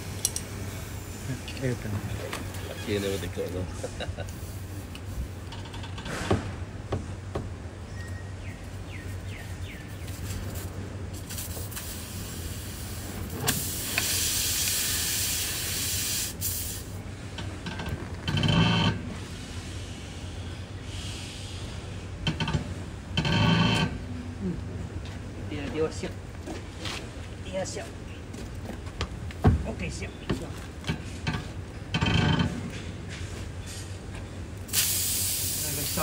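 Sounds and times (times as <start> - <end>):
air hissing out of a tyre: 0.0 - 1.8, 3.9 - 5.4, 10.5 - 17.0, 19.1 - 22.2, 34.7 - 36.0.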